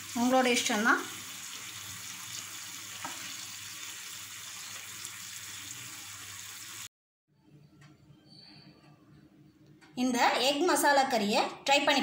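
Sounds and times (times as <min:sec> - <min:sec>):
curry sizzling in a frying pan: 0:00.0 - 0:06.9.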